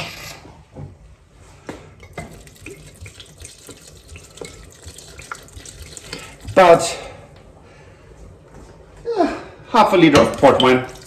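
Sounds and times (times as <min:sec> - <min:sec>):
wine splashing into a pot: 0:02.0 - 0:06.7, 0:10.2 - 0:11.0.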